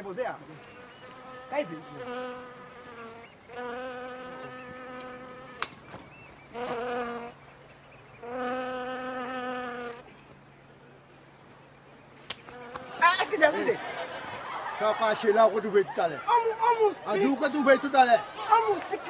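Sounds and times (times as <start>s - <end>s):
mosquito buzzing: 0.6s - 5.7s, 6.5s - 7.4s, 8.2s - 10.1s, 12.4s - 13.2s
sharp crack: 5.6s - 5.8s.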